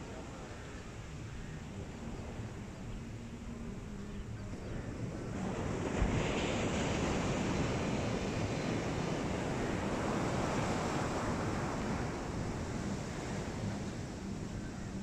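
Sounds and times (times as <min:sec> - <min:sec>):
wind buffeting microphone: 0:00.0 - 0:15.0
ocean surf rushing: 0:04.8 - 0:15.0.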